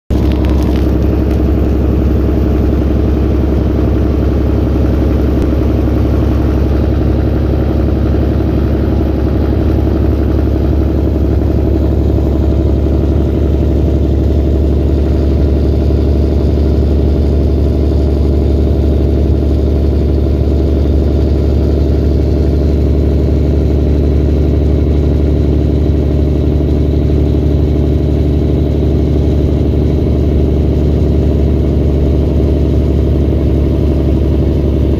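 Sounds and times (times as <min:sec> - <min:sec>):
road noise: 0:00.1 - 0:23.9
diesel truck engine drone: 0:00.1 - 0:34.9.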